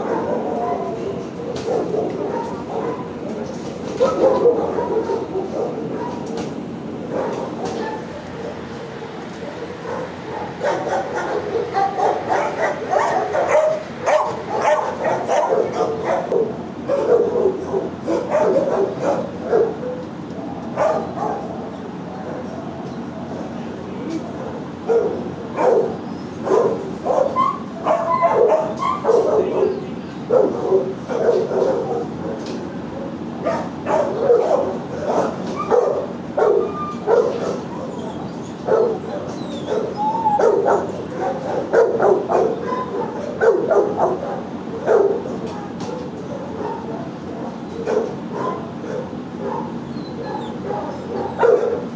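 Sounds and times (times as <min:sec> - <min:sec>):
dogs howling: 0:00.0 - 0:06.4, 0:07.0 - 0:23.4, 0:24.3 - 0:32.4, 0:33.0 - 0:51.9
dogs barking: 0:00.0 - 0:51.9
dog whining: 0:27.1 - 0:29.8, 0:33.4 - 0:41.6, 0:42.3 - 0:44.2, 0:47.7 - 0:51.8.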